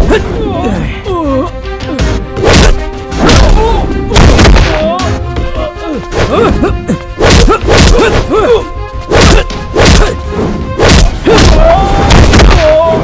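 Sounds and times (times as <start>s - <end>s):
action music: 0.0s - 13.0s
heavy punch impacts: 2.4s - 4.8s.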